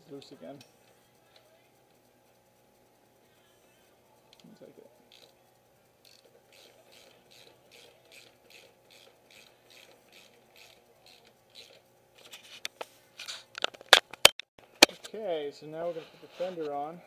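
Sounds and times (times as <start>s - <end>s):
ratchet wrench clicking: 4.2s - 5.4s, 6.0s - 11.9s.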